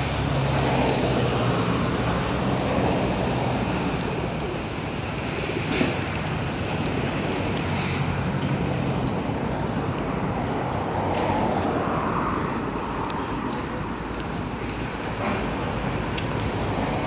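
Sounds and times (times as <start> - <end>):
distant road traffic rumble: 0.0 - 17.0.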